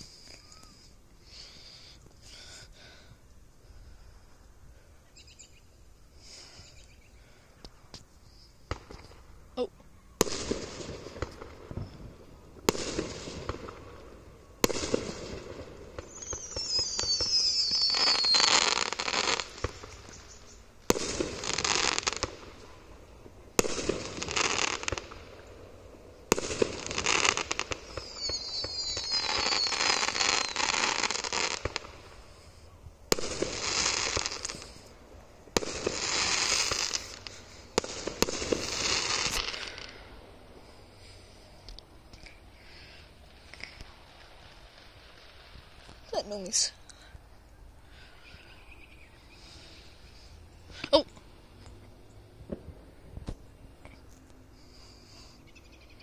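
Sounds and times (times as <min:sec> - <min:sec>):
fireworks crackle: 0:07.6 - 0:55.4
fireworks bangs: 0:08.6 - 0:09.4, 0:10.1 - 0:40.7, 0:52.4 - 0:53.5
high falling whistle: 0:16.0 - 0:19.0, 0:27.8 - 0:30.7.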